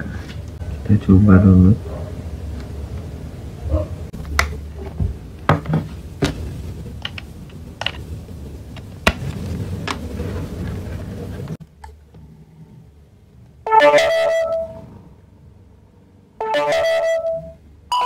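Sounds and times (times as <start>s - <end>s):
low rumble: 0.0s - 13.7s
cable handling clicks and knocks: 7.0s - 8.1s.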